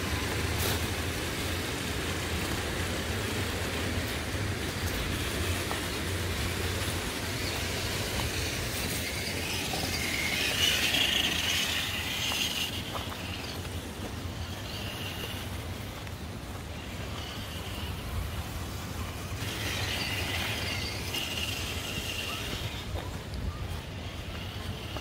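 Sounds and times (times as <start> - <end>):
electric motor whining: 7.4 - 15.9.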